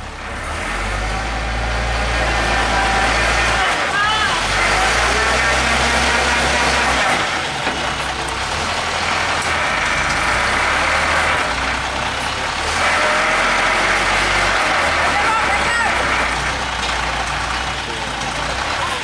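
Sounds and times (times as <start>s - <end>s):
truck diesel engine rumbling: 0.0s - 19.0s.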